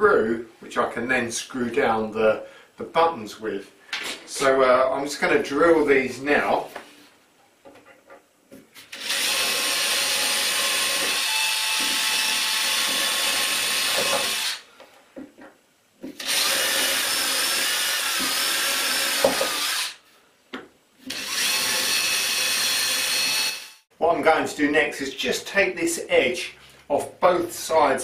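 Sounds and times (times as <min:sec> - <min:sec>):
cordless drill boring wood: 0:08.9 - 0:14.6, 0:16.2 - 0:20.0, 0:21.1 - 0:23.8.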